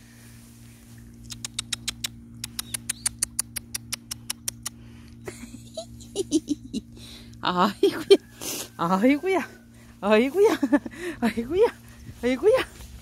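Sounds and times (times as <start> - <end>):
rapid tongue clicks: 1.2 - 4.9.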